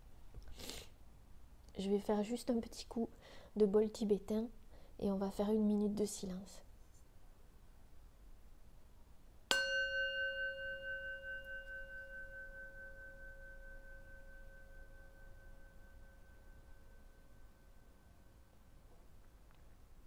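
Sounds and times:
singing bowl ringing: 9.5 - 18.4.

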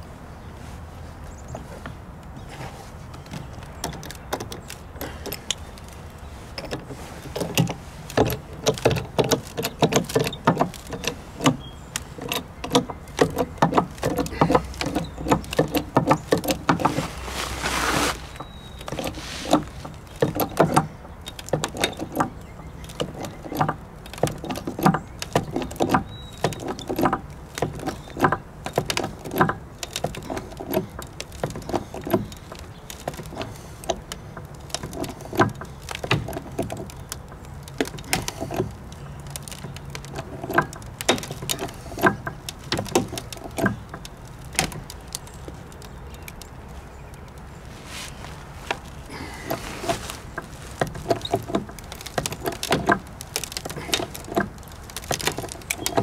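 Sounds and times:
hydraulic jack handle clicks and clunks: 6.6 - 17.1, 18.2 - 44.9, 48.7 - 56.0.

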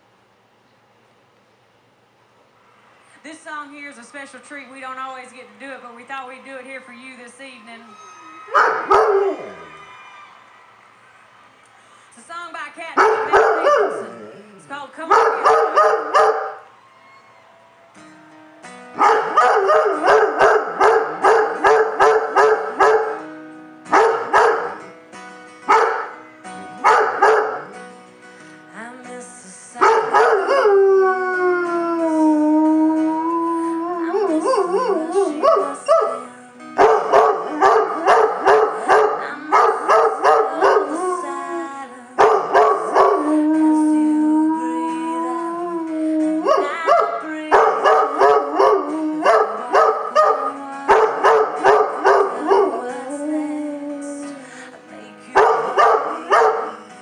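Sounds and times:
dog howling: 8.2 - 9.9, 13.0 - 14.5, 15.1 - 16.7, 19.0 - 23.3, 23.9 - 24.9, 25.7 - 26.2, 26.8 - 27.8, 29.8 - 54.4, 55.4 - 56.8.

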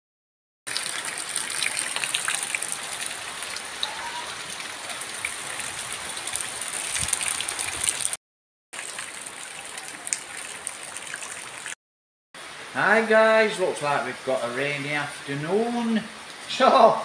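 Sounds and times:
rain falling: 0.7 - 8.2, 8.8 - 11.8, 12.4 - 17.0
drips and splashes: 0.7 - 11.8.

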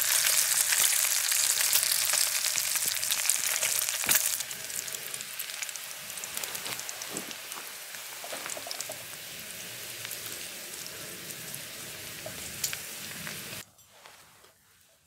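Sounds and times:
bacon sizzling in a pan: 0.0 - 13.6
sharp fat crackles: 0.0 - 13.6.

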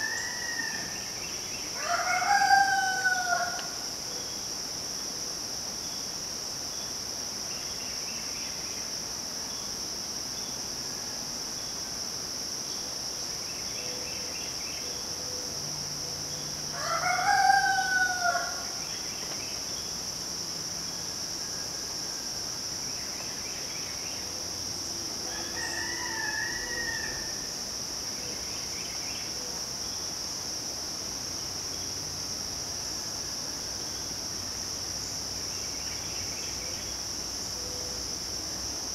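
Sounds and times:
rooster crowing: 0.0 - 1.0, 1.8 - 3.8, 16.7 - 18.8, 25.2 - 27.5.

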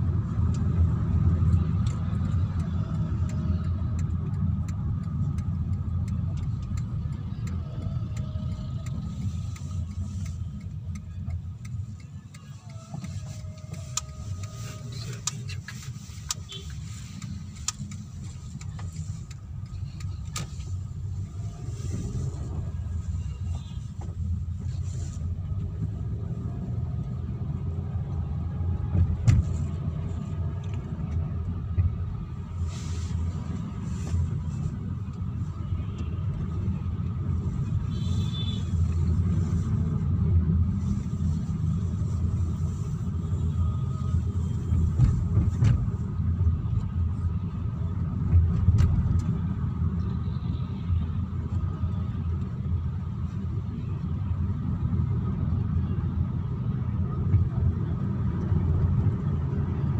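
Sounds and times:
engine and tyre rumble: 0.0 - 59.9.

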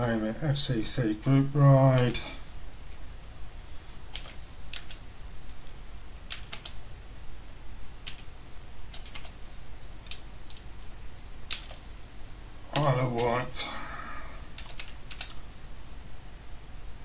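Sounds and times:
typing on computer keyboard: 4.1 - 5.0, 6.3 - 6.8, 8.0 - 8.3, 8.9 - 9.4, 11.5 - 11.8, 14.6 - 15.4.

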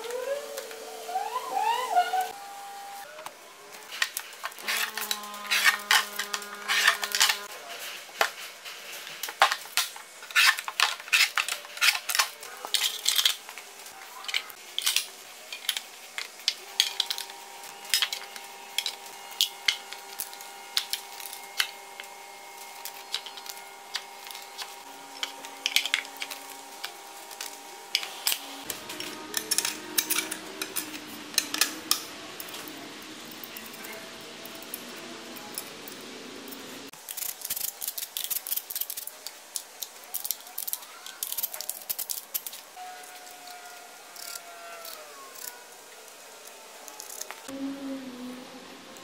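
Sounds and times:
metal parts clinking and knocking: 9.4 - 13.5, 29.0 - 32.7, 33.3 - 42.7.

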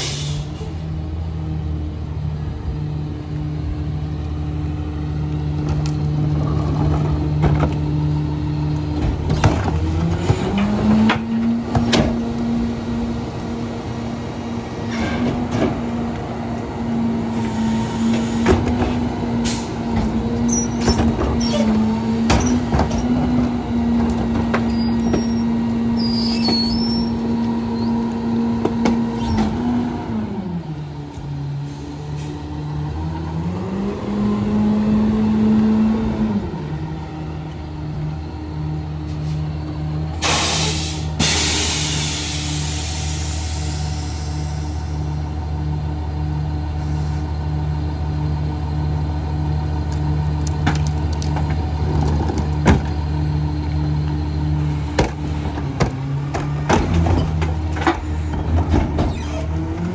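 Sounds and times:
garbage truck engine: 0.0 - 59.9
hydraulic packer running: 2.2 - 59.9
clanks and bangs of trash cart: 55.0 - 59.9.

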